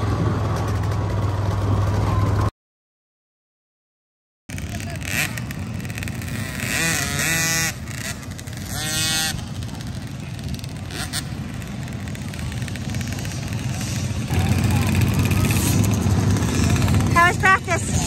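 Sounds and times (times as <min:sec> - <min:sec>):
outdoor background noise: 0:00.0 - 0:02.5, 0:04.5 - 0:18.0
small engine revving: 0:04.5 - 0:18.0.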